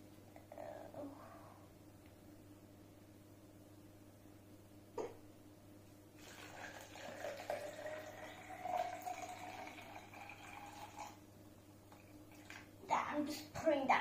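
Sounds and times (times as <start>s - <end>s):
water pouring into bottle: 6.2s - 11.2s.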